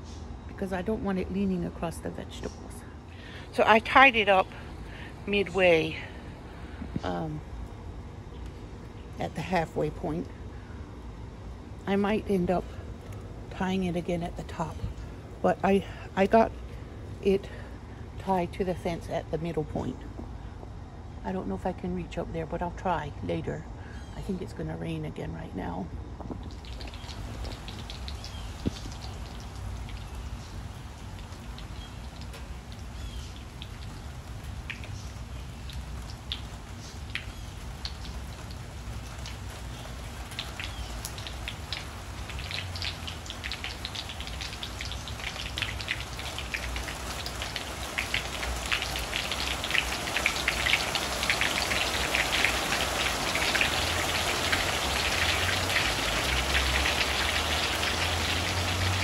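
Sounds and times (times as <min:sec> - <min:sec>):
rain falling: 0:03.5 - 0:07.8, 0:26.4 - 0:59.0.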